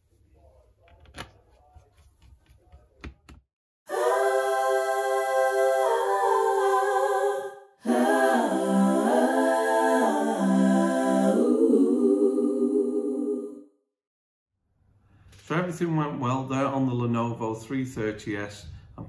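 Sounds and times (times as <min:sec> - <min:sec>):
choir-like pad music: 0:03.9 - 0:13.7.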